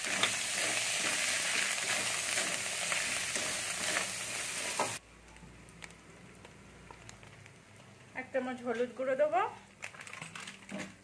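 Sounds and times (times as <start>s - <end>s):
metal spatula scraping pan: 0.0s - 5.0s
paste sizzling in hot oil: 0.0s - 5.0s.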